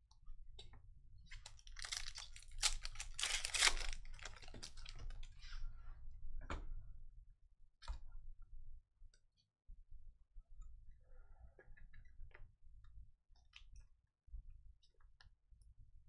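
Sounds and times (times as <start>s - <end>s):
foil wrapper crinkling and tearing: 1.4s - 5.2s.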